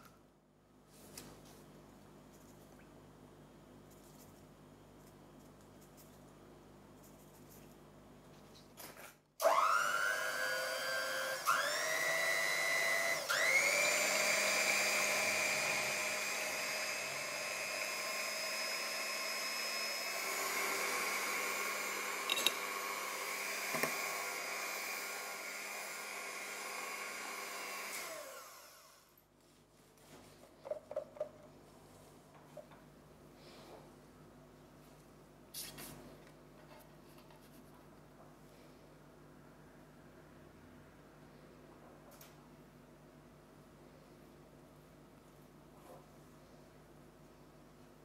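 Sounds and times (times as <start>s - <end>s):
electric hand mixer whine: 9.4s - 29.1s.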